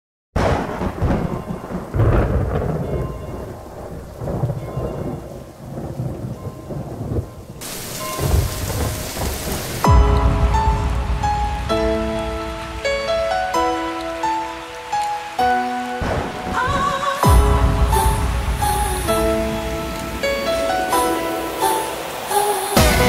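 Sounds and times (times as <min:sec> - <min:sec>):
thunder rolling: 0:00.4 - 0:14.7, 0:15.9 - 0:23.0
steady rain: 0:00.4 - 0:23.0
soft music notes: 0:08.0 - 0:23.0.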